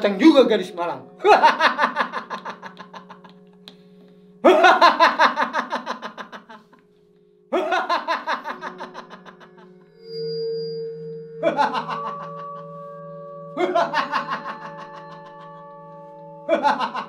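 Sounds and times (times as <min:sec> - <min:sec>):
background music drone: 0:00.0 - 0:17.0
old man laughing: 0:01.2 - 0:03.5, 0:04.4 - 0:06.7, 0:07.5 - 0:09.7, 0:11.4 - 0:12.6, 0:13.6 - 0:15.4, 0:16.5 - 0:17.0.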